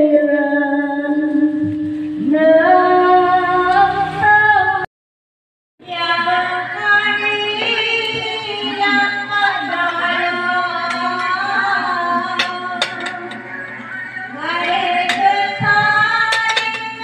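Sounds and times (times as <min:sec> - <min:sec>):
music with woman singing: 0:05.8 - 0:17.0.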